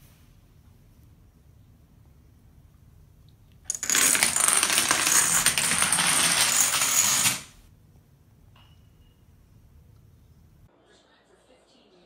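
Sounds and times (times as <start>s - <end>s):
dominoes toppling: 3.7s - 7.5s.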